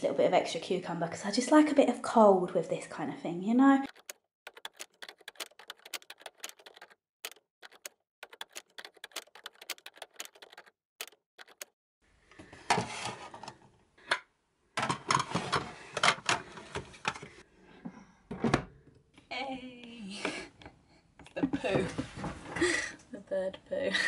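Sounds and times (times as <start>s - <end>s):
keyboard typing clicks: 3.9s - 11.7s.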